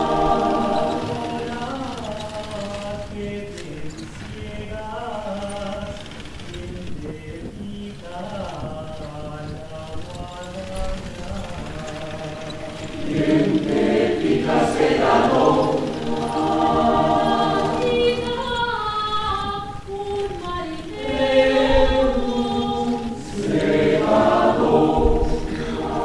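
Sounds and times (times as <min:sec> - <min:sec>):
choir singing: 0:00.0 - 0:03.6, 0:11.3 - 0:26.0.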